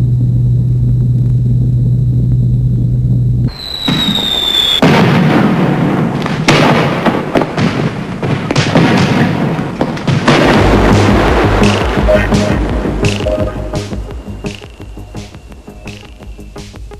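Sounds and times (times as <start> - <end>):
firework rocket whistle: 3.5 - 5.0, 13.1 - 16.9
firework bangs: 3.5 - 16.4
firework crackling: 3.5 - 16.8.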